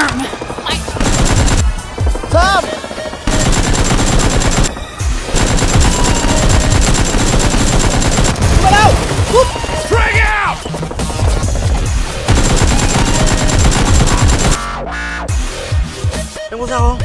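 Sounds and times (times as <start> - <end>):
rapid automatic gunfire: 0.4 - 9.3, 11.2 - 14.6.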